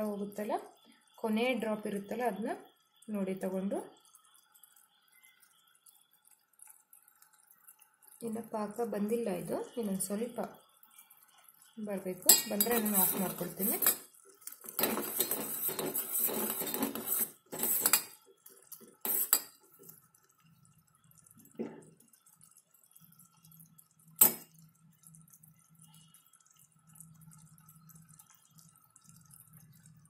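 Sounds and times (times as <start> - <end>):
spoon scraping saucepan: 12.2 - 19.6
spoon clinking against pot: 12.3 - 14.1, 14.7 - 18.2, 19.0 - 19.6.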